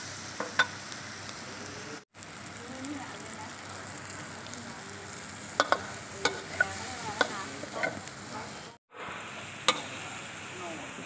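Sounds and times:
oil sizzling in a wok: 0.0 - 11.0
metal spatula scraping a wok: 5.1 - 8.8.

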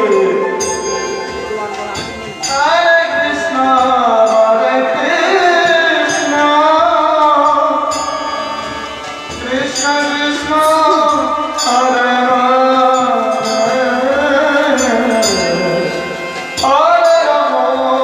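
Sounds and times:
drum strokes: 5.1 - 17.2
bamboo flute melody: 10.0 - 17.8.

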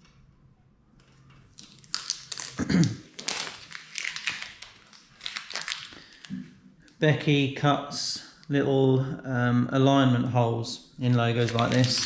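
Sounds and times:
vinyl and paper crinkling: 1.5 - 6.4, 11.0 - 12.0.

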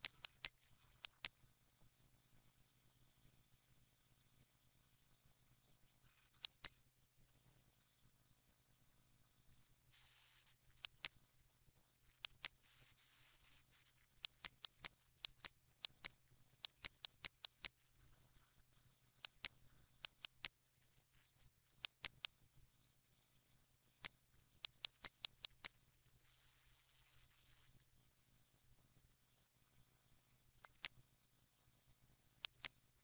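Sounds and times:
computer mouse clicking: 0.0 - 1.4, 6.3 - 6.8, 10.0 - 11.2, 12.1 - 17.9, 19.2 - 22.3, 24.0 - 27.8, 30.6 - 31.0, 32.4 - 32.8
faint steady hum: 0.0 - 33.0
soft hiss: 9.5 - 16.7, 25.5 - 28.0.

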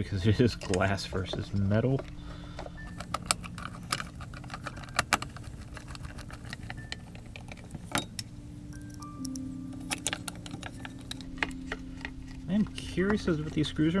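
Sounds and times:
steady low hum: 0.0 - 14.0
screwdriver clicking on metal screws: 2.8 - 12.5.

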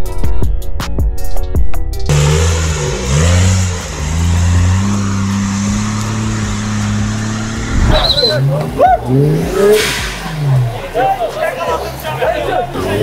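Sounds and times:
background music: 0.0 - 13.0
engine revving: 2.1 - 11.0.

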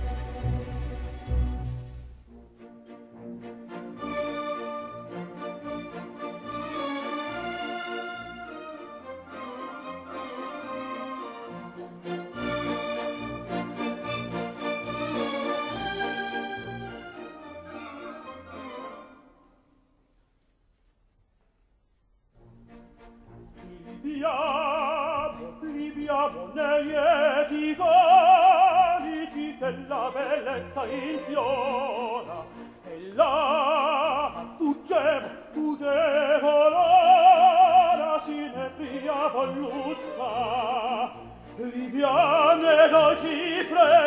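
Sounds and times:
instrumental accompaniment: 0.0 - 19.8.

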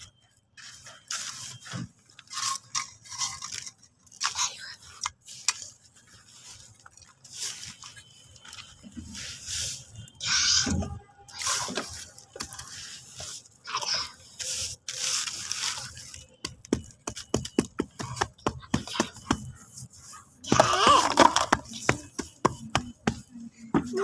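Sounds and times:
hand scraping gritty sand mix: 7.2 - 10.4, 11.4 - 20.5.

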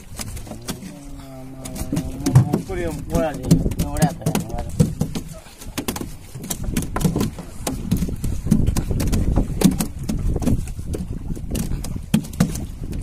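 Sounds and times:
low boat rumble: 0.0 - 13.0
sharp knocks and taps: 1.6 - 13.0.

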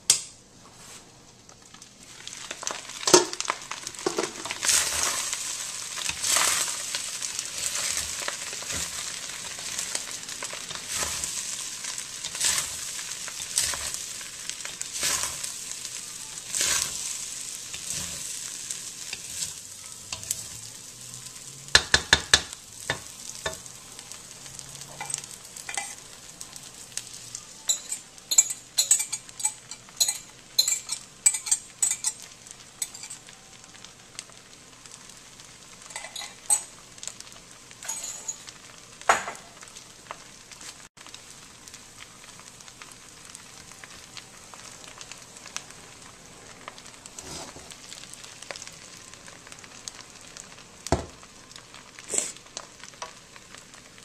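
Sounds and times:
rice sizzling in a wok: 0.8 - 54.0
wooden spatula scraping wok: 2.1 - 21.6, 47.0 - 48.1.

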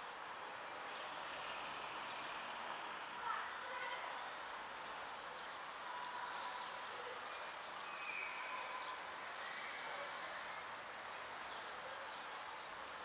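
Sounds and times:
outdoor background noise: 0.0 - 13.0
faint bird chirps: 6.1 - 10.1.

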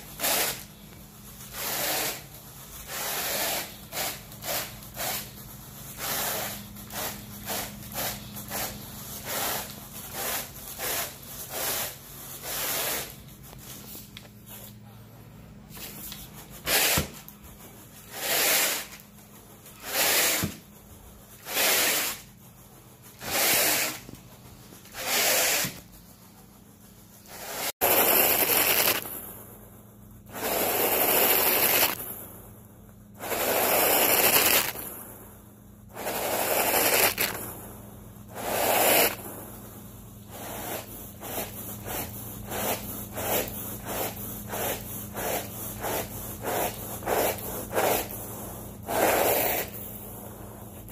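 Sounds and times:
rake scratching through carpet: 0.0 - 14.8, 15.7 - 29.2, 30.3 - 32.2, 33.2 - 35.0, 35.9 - 37.6, 38.3 - 39.5, 40.3 - 50.9
low steady hum: 34.7 - 50.9.

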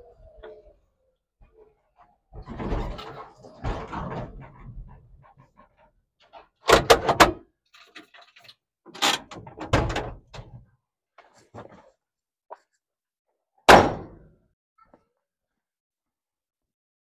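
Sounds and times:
knocks and clunks: 2.3 - 5.6, 6.3 - 7.4, 8.9 - 10.6.

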